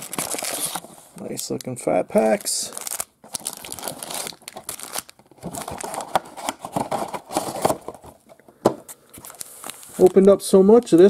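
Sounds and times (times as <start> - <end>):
foil wrappers crinkling: 0.0 - 7.8.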